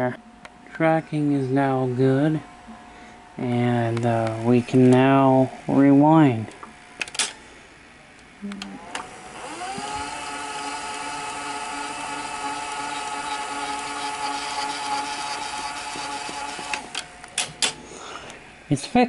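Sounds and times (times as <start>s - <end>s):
mechanism clicks: 6.5s - 7.4s, 13.3s - 17.8s
tape reel motor whine: 8.7s - 17.7s.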